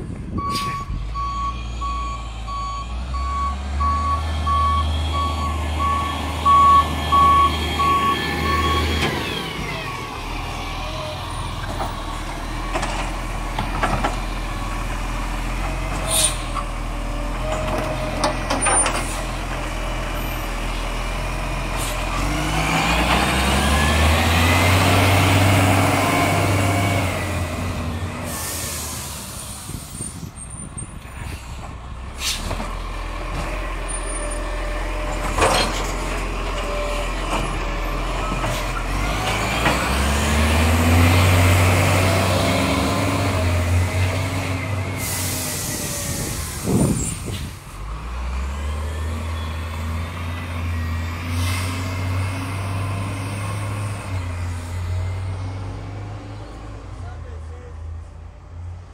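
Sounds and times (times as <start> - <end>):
garbage truck diesel engine revving: 1.6 - 29.8, 31.6 - 56.9
air brake hisses: 16.0 - 16.6, 28.3 - 30.2, 32.2 - 32.5, 45.0 - 47.6.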